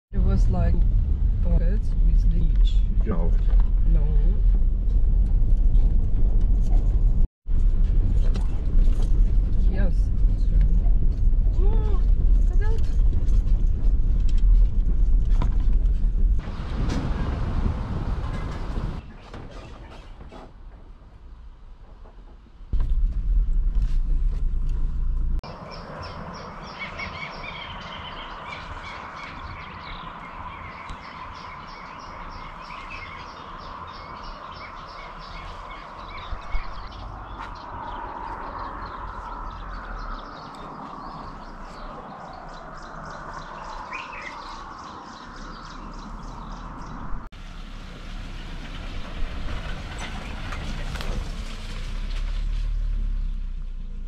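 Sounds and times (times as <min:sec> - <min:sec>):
birds chirping and singing: 0:25.5 - 0:47.2.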